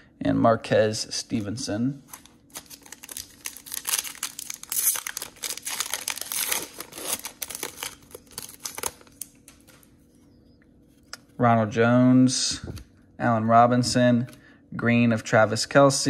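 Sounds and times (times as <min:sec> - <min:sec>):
foil wrapper crinkling and tearing: 0:02.1 - 0:09.9.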